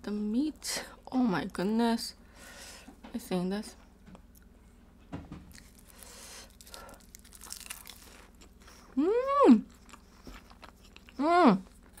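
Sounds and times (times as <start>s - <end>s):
crisp crunching and crinkling: 5.5s - 8.9s
close-up chewing: 5.5s - 9.0s, 9.6s - 12.0s
person humming mmm: 8.9s - 9.8s.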